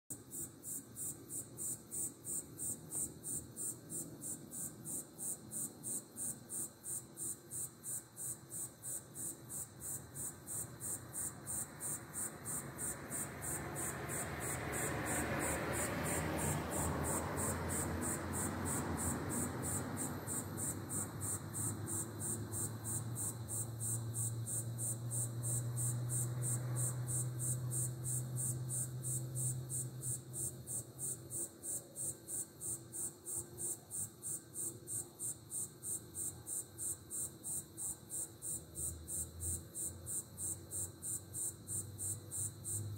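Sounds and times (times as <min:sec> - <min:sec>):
insects chirping: 0:00.1 - 0:42.9.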